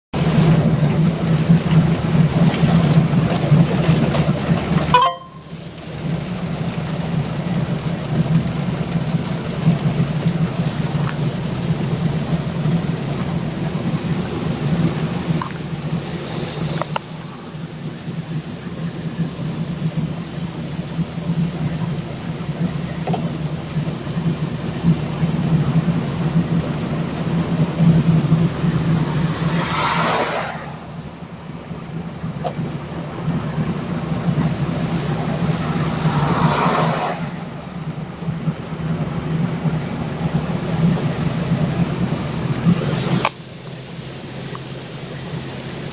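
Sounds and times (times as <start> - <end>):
rain on car roof: 0.1 - 45.9
steady engine hum: 0.2 - 45.9
wet tyre hiss: 8.4 - 45.9.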